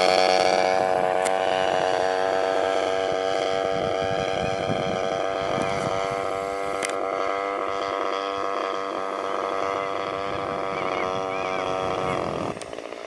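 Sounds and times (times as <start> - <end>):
model plane engine flying past: 0.0 - 13.0.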